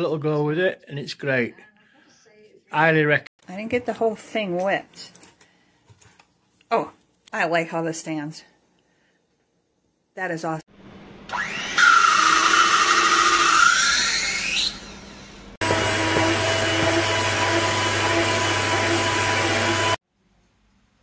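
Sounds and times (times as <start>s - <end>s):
hand mixer beating batter: 11.3s - 14.8s, 15.6s - 20.0s
hand mixer whipping cream: 11.3s - 14.8s, 15.6s - 20.0s.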